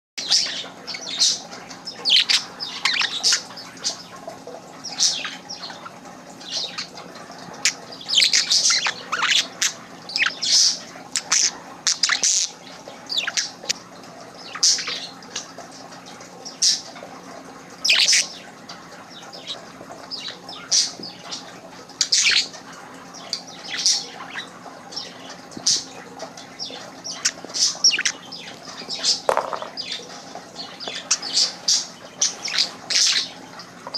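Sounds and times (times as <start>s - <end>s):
faint steady hum: 0.2s - 33.9s
budgerigar chirping: 2.0s - 4.0s, 26.6s - 30.0s.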